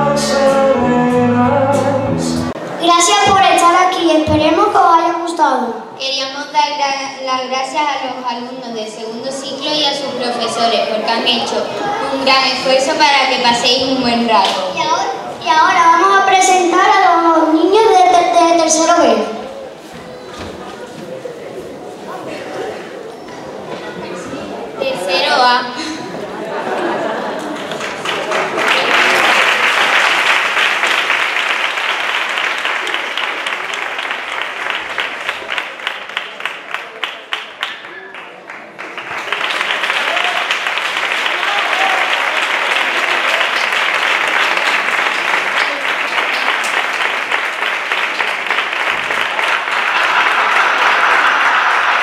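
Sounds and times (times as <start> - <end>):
audience applauding: 26.2 - 52.0.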